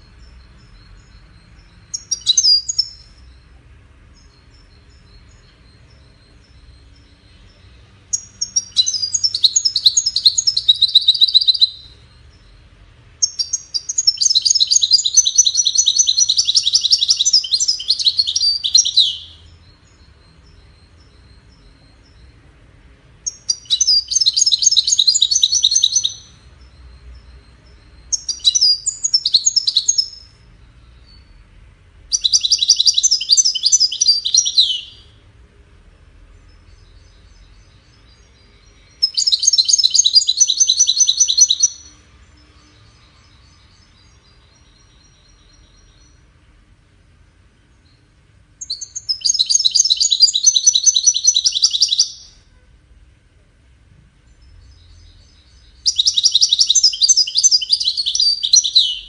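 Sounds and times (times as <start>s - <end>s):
goldfinch twittering song: 0.0s - 31.5s, 32.1s - 35.2s, 36.3s - 46.3s, 47.6s - 52.4s, 54.3s - 59.0s
bird call notes: 55.3s - 59.0s.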